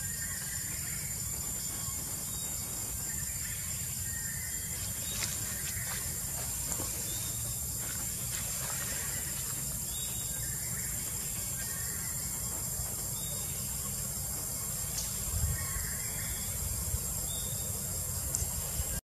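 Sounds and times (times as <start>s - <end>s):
high-pitched insect chorus: 0.0s - 19.0s
faint clicks: 18.3s - 18.5s.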